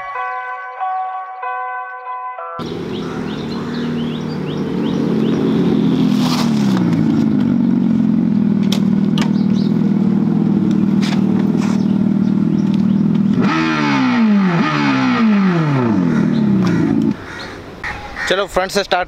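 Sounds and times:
artificial engine revs: 2.6 - 17.2
artificial engine sound humming: 2.6 - 17.2.

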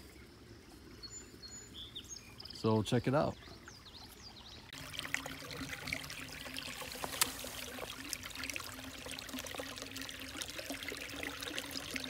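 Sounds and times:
creek trickling: 0.0 - 12.0
small splashy ticks: 6.7 - 9.6.

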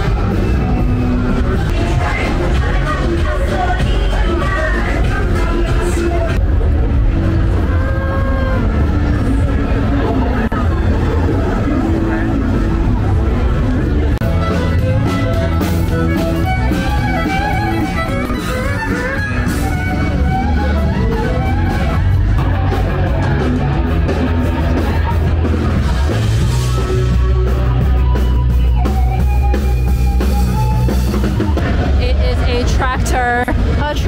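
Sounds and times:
deep bass line: 0.0 - 34.0
drum kit: 0.0 - 34.0
electric guitar: 0.0 - 34.0.

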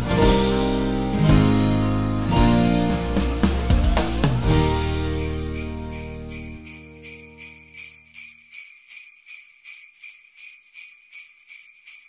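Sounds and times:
background music chord: 0.0 - 7.4
jingle bells shaken: 4.5 - 12.0.

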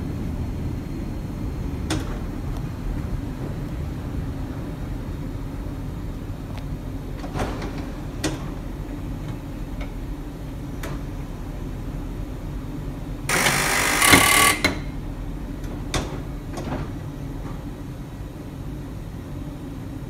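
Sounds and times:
streetcar rumbling on track: 0.0 - 13.3
loud burst of noise: 13.3 - 14.8.

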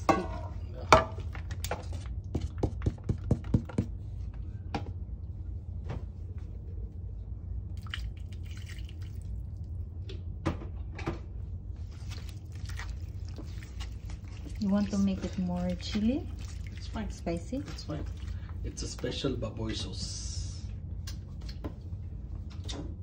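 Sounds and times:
low steady hum: 0.0 - 23.0
wet squelching of mixing: 7.7 - 10.0, 11.6 - 20.0.

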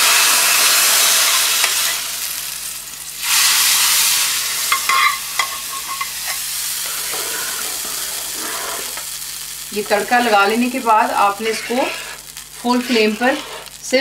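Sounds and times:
hot oil sizzling in pot: 0.0 - 14.0.

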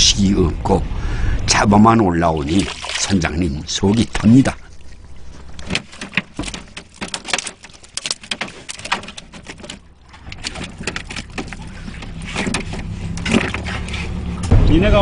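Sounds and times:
boat engine humming: 0.0 - 15.0
fish slapping in plastic crate: 2.6 - 3.2, 5.4 - 14.2.

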